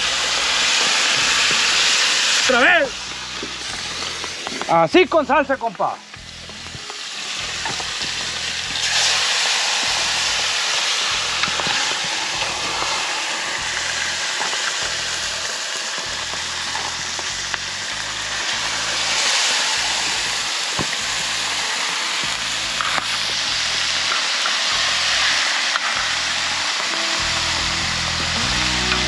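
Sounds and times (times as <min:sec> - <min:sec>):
chicken sizzling in hot oil: 0:00.0 - 0:29.0.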